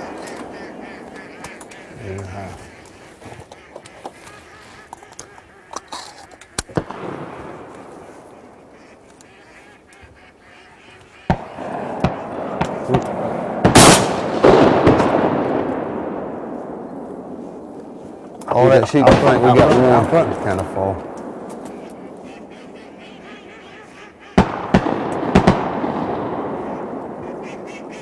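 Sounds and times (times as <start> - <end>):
ducks quacking: 0.0 - 13.2, 18.5 - 25.0, 26.3 - 28.0
shotgun shots echoing: 6.7 - 8.0, 11.3 - 17.4, 18.6 - 22.5, 24.4 - 27.9.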